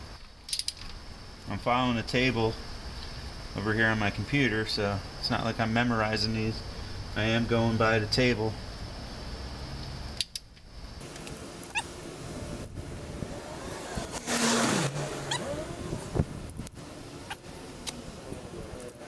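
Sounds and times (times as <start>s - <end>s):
sharp metal clicks of wrench: 0.5s - 0.9s, 10.2s - 10.6s.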